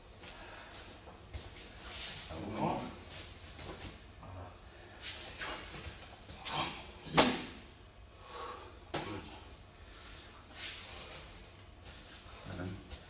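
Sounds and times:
martial arts strikes knocking: 6.5s - 7.6s.

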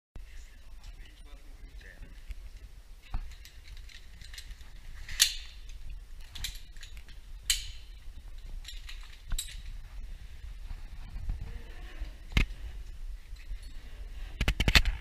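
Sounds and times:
steady low hum: 0.2s - 15.0s
metal clips rattling against duct: 3.0s - 9.8s
metal clinks: 3.0s - 10.0s, 12.8s - 14.2s.

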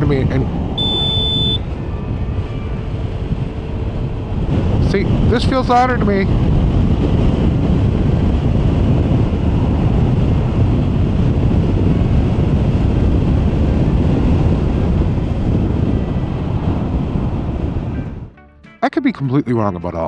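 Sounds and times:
wind noise in a helmet: 0.0s - 18.4s.

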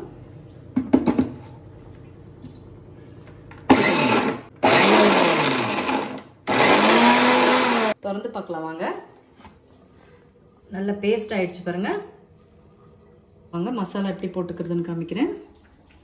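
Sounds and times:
mixer grinder grinding: 3.7s - 8.0s.

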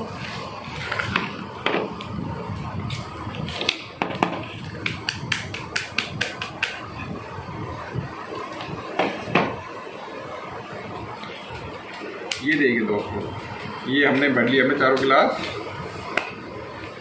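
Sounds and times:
plastic cups tapping on table: 4.0s - 6.8s.

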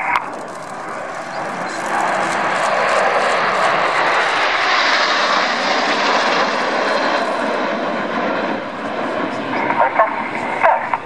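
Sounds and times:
jets roaring overhead: 0.0s - 11.0s.

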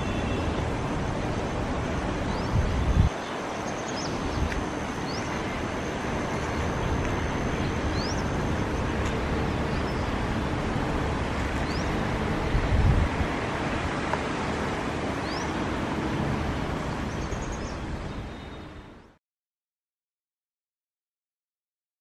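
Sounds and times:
steady outdoor rush: 0.0s - 19.2s
small birds chirping: 2.1s - 10.5s, 11.4s - 12.1s, 15.2s - 15.6s, 16.9s - 19.2s.

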